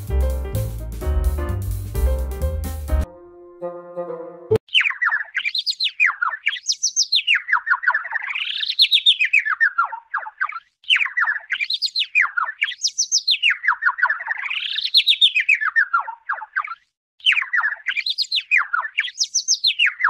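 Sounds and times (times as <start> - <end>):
artificial chirping sound effect: 4.6 - 20.0.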